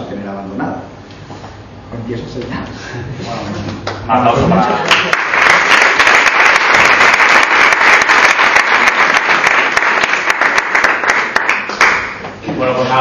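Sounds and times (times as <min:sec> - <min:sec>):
audience applauding: 0:04.6 - 0:12.3.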